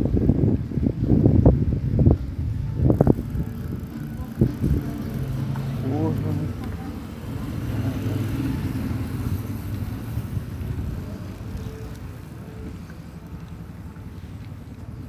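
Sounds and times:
wind rushing over microphone: 0.0 - 11.8
small motorcycle engine cruising: 2.8 - 15.0.

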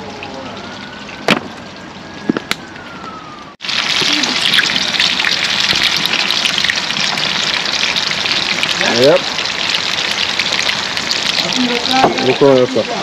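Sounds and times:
fish sizzling in hot oil: 3.6 - 13.0.

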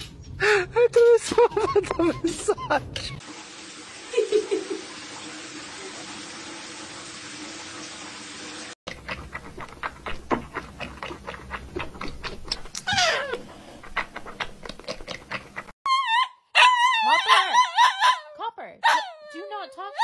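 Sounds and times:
kitten lapping milk: 8.9 - 12.6.

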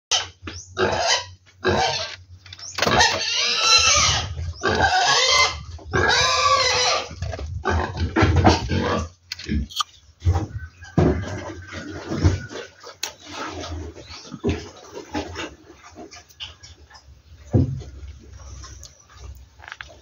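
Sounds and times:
pig squealing: 0.1 - 9.9
pig grunting: 0.8 - 2.2, 2.8 - 9.8.

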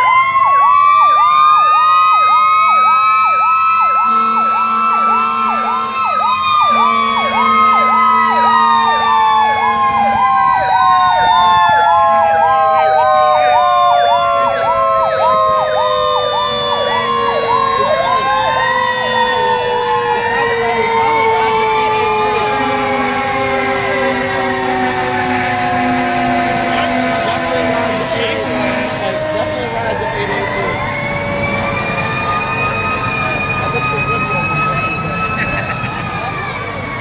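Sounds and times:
electronic siren yelping: 0.0 - 37.0
siren wails gliding down: 0.0 - 37.0
low steady horn tone: 3.9 - 10.6, 12.0 - 30.4.

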